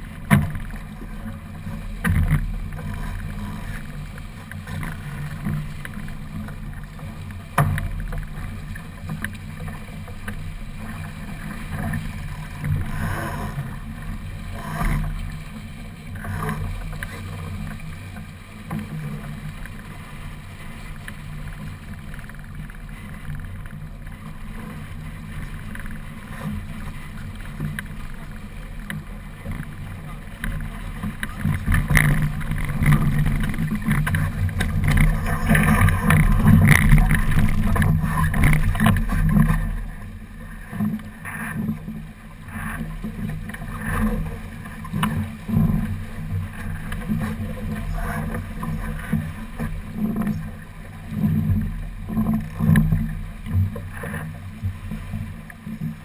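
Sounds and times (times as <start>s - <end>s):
sharp knocks from boat: 0.0s - 3.8s, 4.4s - 10.5s, 28.8s - 40.0s
water rushing along hull: 0.0s - 56.0s.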